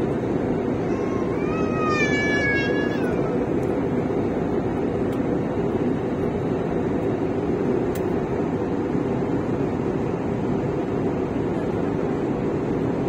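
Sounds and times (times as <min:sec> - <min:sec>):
airliner cabin roar: 0:00.0 - 0:13.0.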